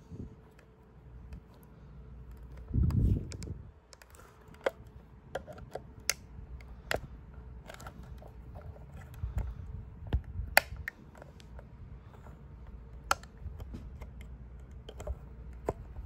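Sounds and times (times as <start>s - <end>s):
screwdriver clicking on plastic: 12.6s - 16.0s.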